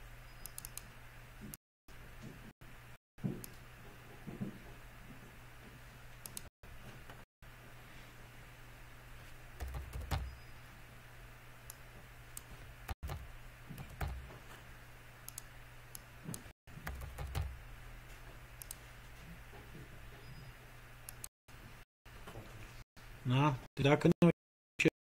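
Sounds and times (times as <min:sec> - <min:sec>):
keyboard typing: 0:09.6 - 0:10.4, 0:12.9 - 0:14.4, 0:16.4 - 0:17.6.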